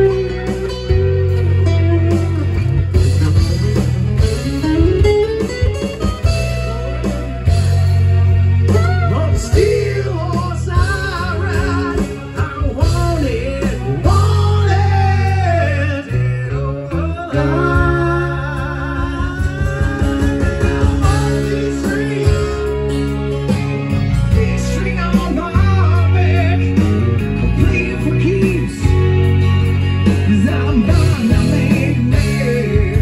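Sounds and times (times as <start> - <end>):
amplified guitar playing: 0.0 - 33.0
heavy sustained bass notes: 0.0 - 33.0
man singing: 8.7 - 33.0.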